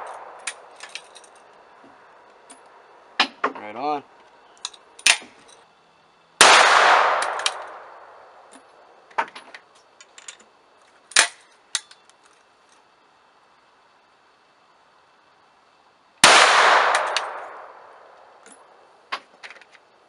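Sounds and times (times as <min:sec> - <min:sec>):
gunshot bang echoing: 0:06.4 - 0:07.9.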